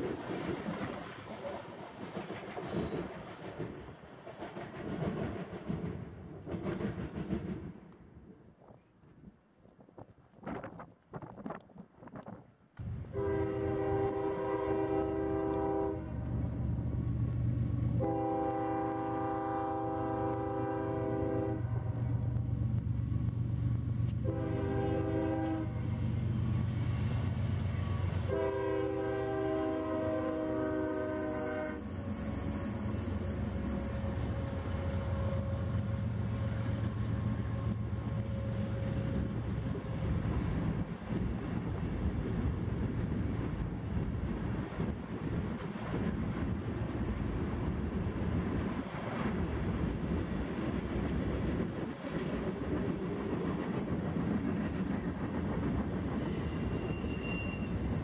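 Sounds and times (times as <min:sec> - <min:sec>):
freight cars rolling on rails: 0:00.0 - 0:08.0, 0:31.8 - 0:58.0
train air horn: 0:13.1 - 0:16.2, 0:18.0 - 0:22.0, 0:24.2 - 0:25.8, 0:28.2 - 0:32.0, 0:33.7 - 0:36.8, 0:56.4 - 0:58.0.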